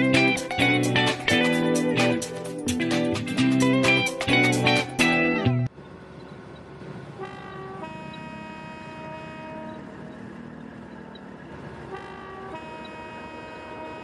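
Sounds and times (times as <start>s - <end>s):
train horn two-note blasts: 7.2s - 9.9s, 11.9s - 14.0s.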